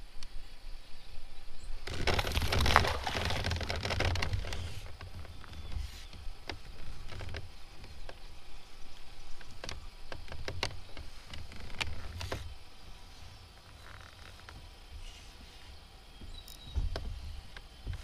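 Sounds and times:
water splashing against hull: 1.9 - 4.6
steady low rumble: 3.2 - 18.0
light knocks and clicks: 16.2 - 18.0.

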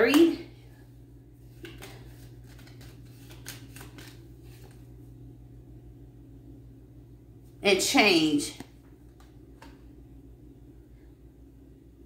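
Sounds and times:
faint low hum: 0.0 - 12.0
cards being shuffled: 1.5 - 4.9
soft card snaps: 1.6 - 4.8.

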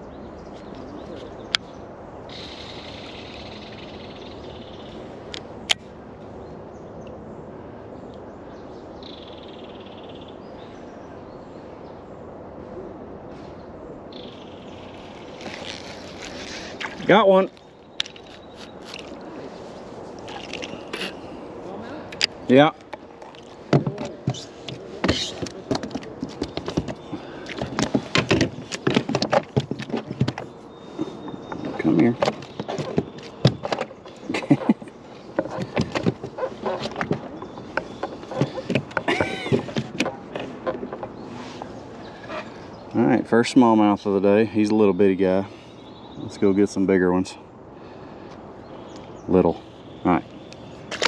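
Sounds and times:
knocks and rattles on plastic kayak: 22.9 - 41.3.

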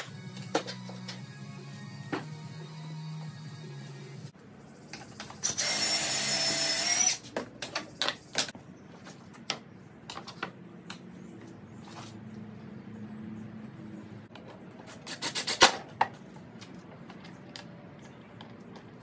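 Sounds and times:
cordless drill running: 5.5 - 7.2.

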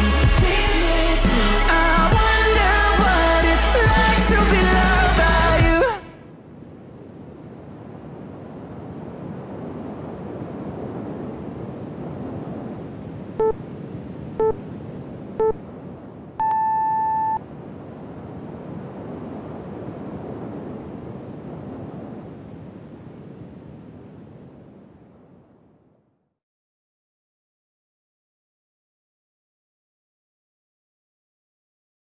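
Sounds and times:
timer beeps: 16.4 - 17.4.

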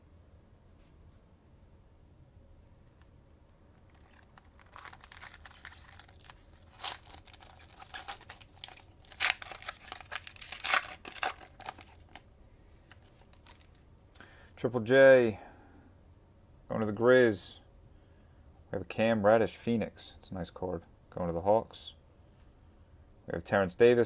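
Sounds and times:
foil wrapper crackling: 3.7 - 12.3, 12.9 - 13.8
foil wrapper ripping: 3.8 - 12.2, 12.9 - 13.8.

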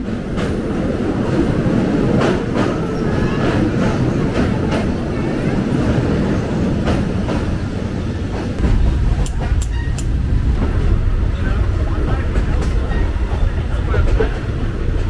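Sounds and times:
train rumbling on rails: 0.0 - 15.0
sharp clicks of rails: 8.3 - 10.2.

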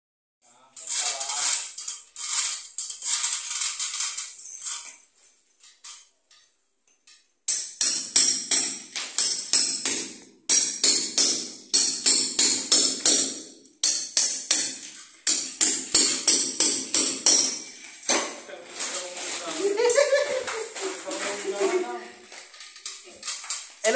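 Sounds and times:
hammer striking steel chisel: 7.1 - 18.4.

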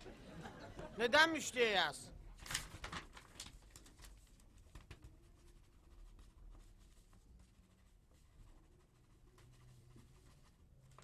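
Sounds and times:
pen scratching on paper: 5.1 - 11.0.

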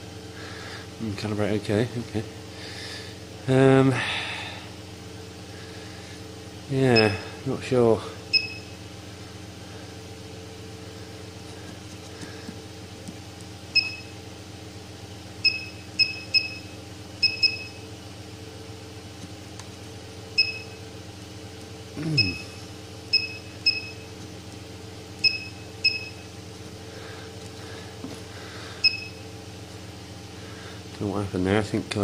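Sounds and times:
steady hum: 0.0 - 32.0
high electronic beeps: 7.0 - 7.3, 22.2 - 24.0.

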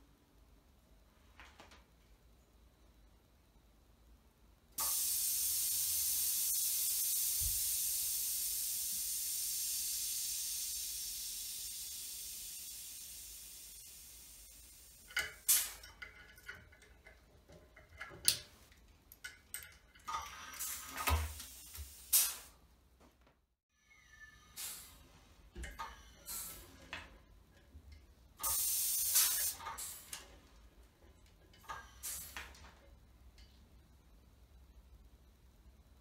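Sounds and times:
compressed air hissing: 4.8 - 15.9, 20.5 - 22.6, 24.5 - 25.2, 26.1 - 26.9, 28.4 - 30.4, 31.7 - 32.6.

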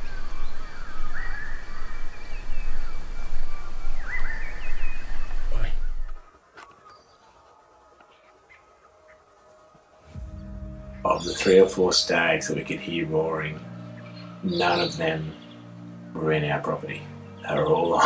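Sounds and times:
whistled bird calls: 0.0 - 6.2, 10.9 - 12.2
bird chirps: 0.0 - 7.3, 10.2 - 18.0
low rumble: 10.2 - 12.7.

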